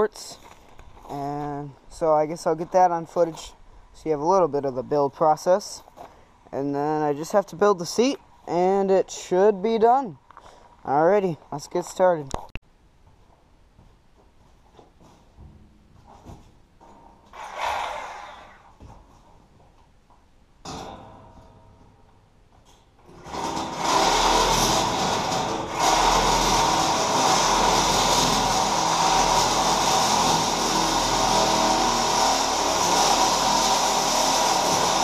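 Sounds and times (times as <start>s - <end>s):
angle grinder cutting sheet metal: 17.3s - 18.8s, 23.1s - 35.0s.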